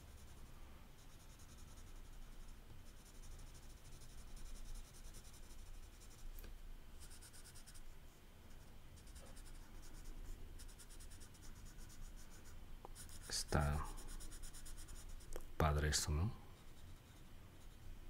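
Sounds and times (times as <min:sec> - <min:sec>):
pencil scratching on paper: 0:01.0 - 0:06.3, 0:07.0 - 0:07.8, 0:08.5 - 0:15.3, 0:16.6 - 0:17.8.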